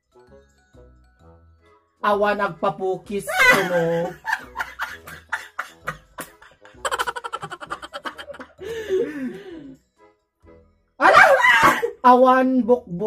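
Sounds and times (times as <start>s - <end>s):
women laughing: 3.3s - 9.5s, 11.0s - 11.9s.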